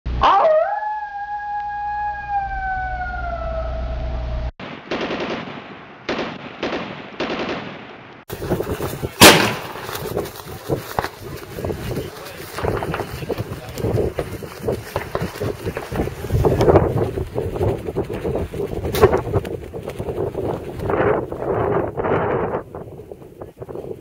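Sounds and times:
sustained tone sliding down: 1.0 - 4.5
loud gunshot: 4.6 - 8.1, 9.2 - 10.0
bursts of gunfire: 4.6 - 14.2.

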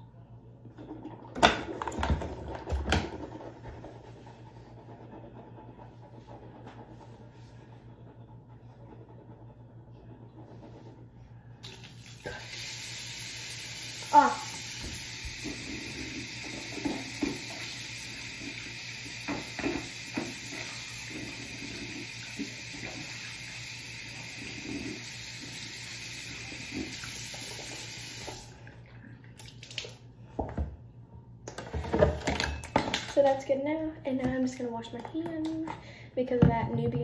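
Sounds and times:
tap running into basin: 13.9 - 24.4.

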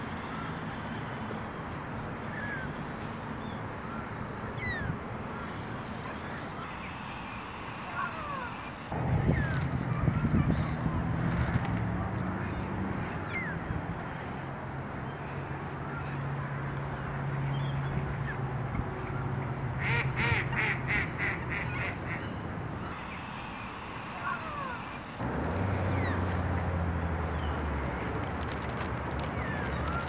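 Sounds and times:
ducks quacking: 19.8 - 22.3
steady low hum: 22.7 - 27.2.

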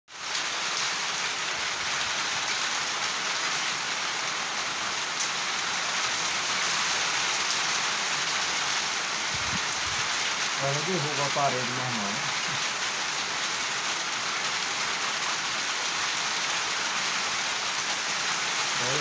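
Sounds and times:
heavy rain on trees: 0.1 - 19.0.

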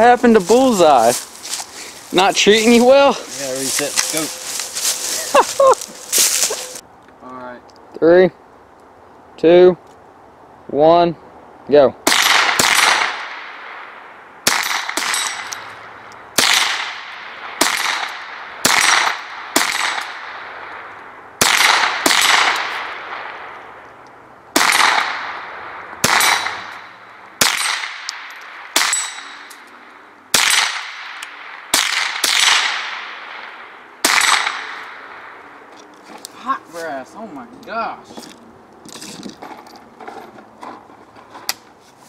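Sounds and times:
rifle shots with echo: 12.0 - 15.6, 16.4 - 23.8, 24.5 - 29.5, 30.3 - 35.4.

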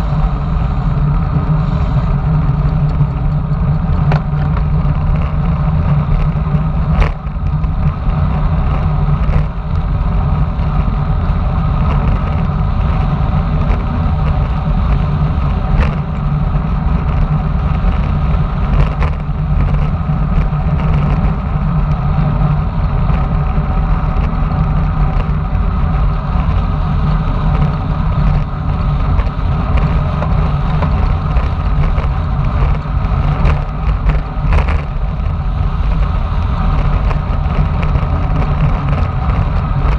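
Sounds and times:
tyre and road rumble: 0.0 - 39.9
wind buffeting microphone: 0.0 - 39.9.

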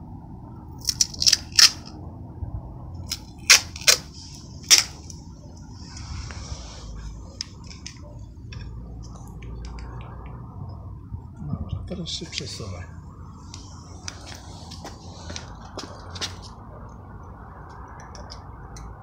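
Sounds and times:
tape pulled off roll crackling: 3.0 - 5.2.

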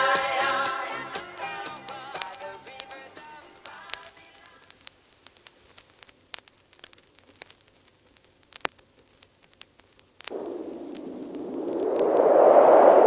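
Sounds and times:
vinyl clicks and pops: 0.0 - 12.2
vinyl surface hiss: 0.0 - 13.0
hissing whoosh: 10.3 - 13.0.

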